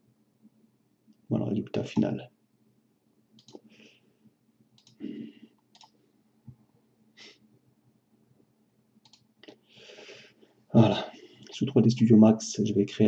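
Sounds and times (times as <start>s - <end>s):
computer mouse clicks: 3.4s - 3.7s, 4.8s - 6.0s, 9.0s - 9.6s
person breathing near microphone: 3.6s - 4.2s, 5.0s - 5.6s, 7.2s - 7.4s, 9.6s - 11.5s.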